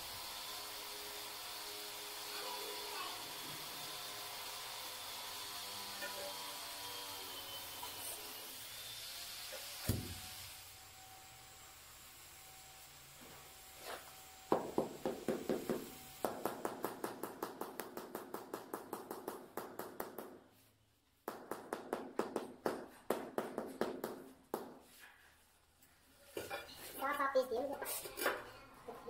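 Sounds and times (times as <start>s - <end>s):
rapid tapping on stone tile: 14.5s - 20.4s.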